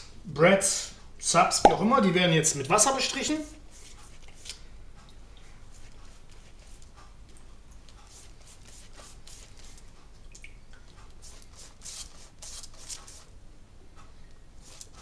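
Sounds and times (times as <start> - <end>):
pastry brush swishing on dough: 2.9 - 4.6, 5.7 - 7.0, 8.0 - 9.9, 11.2 - 13.3, 14.6 - 15.0.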